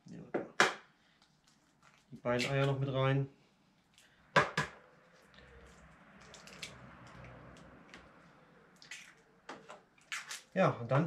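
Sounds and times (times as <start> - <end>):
soft squelching: 1.1 - 10.9.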